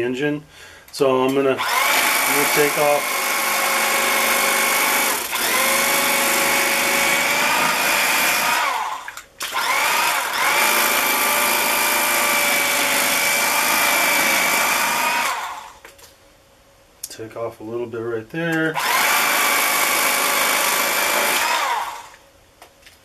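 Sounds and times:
electric carving knife motor whine: 1.6 - 15.8, 18.8 - 22.2.

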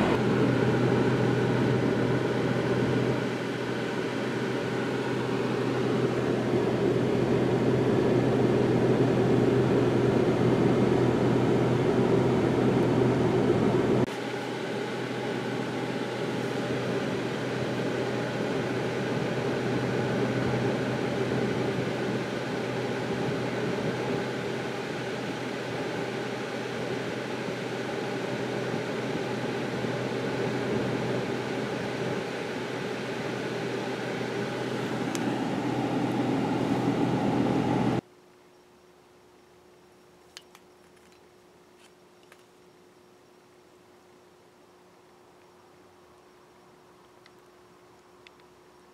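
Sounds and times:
car engine idling: 0.0 - 2.7
faint hum: 0.0 - 48.9
small clicks: 47.0 - 48.5.

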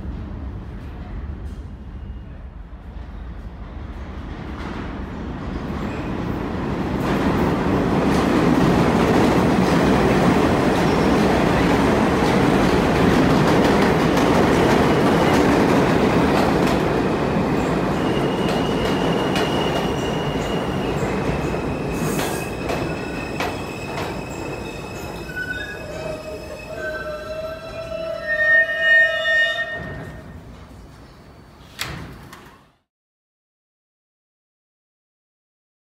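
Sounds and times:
train wheels rumbling on rail: 0.0 - 28.5.

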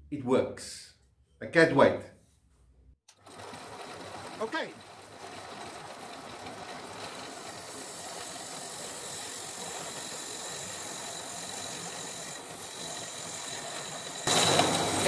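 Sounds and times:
wood lathe tool scraping hiss: 3.1 - 15.0.

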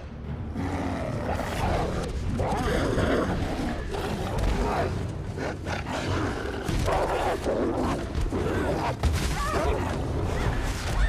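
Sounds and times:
wolves snarling and growling: 0.5 - 9.0.

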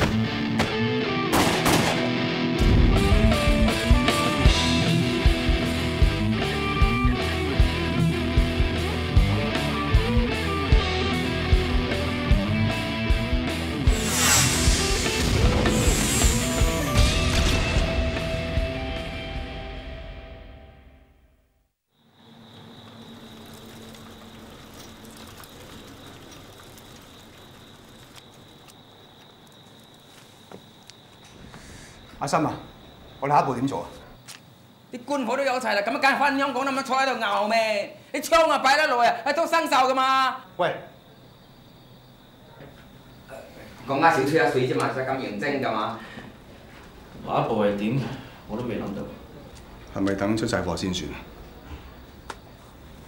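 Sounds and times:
music: 0.0 - 21.6
guitar music: 0.1 - 1.3
steady drum beat: 2.8 - 9.4
background hiss: 13.8 - 17.2, 22.0 - 53.0.

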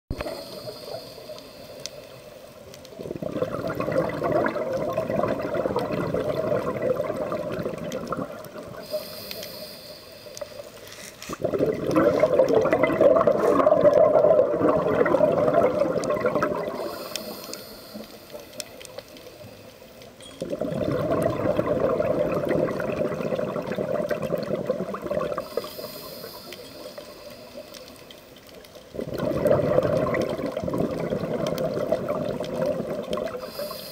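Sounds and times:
regulator inhale hiss: 0.2 - 2.6, 8.8 - 11.4, 16.6 - 19.9, 25.4 - 28.4, 33.3 - 33.9
bubbling exhalations underwater: 2.9 - 9.0, 11.3 - 17.2, 20.3 - 25.6, 28.9 - 33.6.

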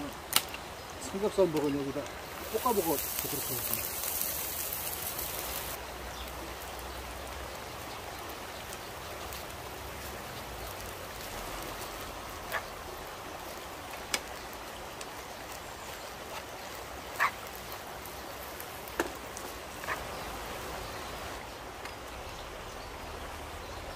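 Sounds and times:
stream flowing over rocks: 0.0 - 23.9.

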